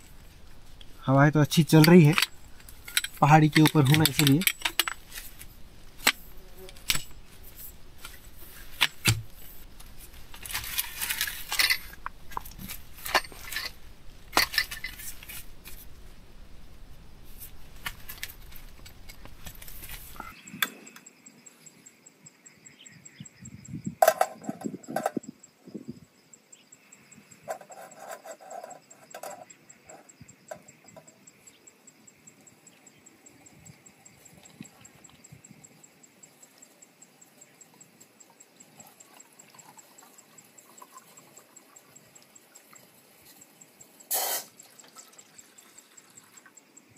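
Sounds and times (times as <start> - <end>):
metal camping gear clattering: 0.0 - 15.9, 17.4 - 20.4, 24.0 - 25.2, 27.4 - 31.1
insect chirring: 0.0 - 46.9
wind buffeting microphone: 23.2 - 26.1.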